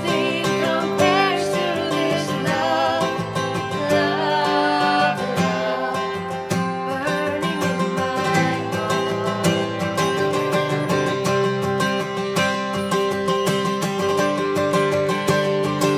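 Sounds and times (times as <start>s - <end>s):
woman singing: 0.0s - 10.6s
acoustic guitar strumming: 0.0s - 15.9s.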